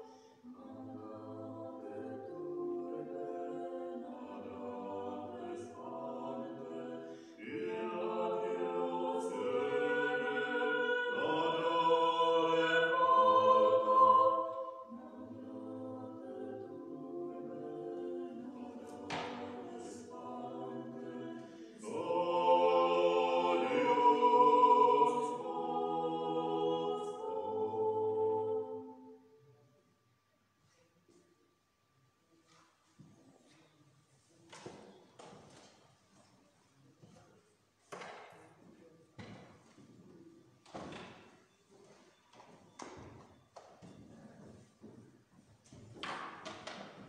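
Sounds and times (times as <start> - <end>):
voices singing a hymn: 0.0 - 29.4.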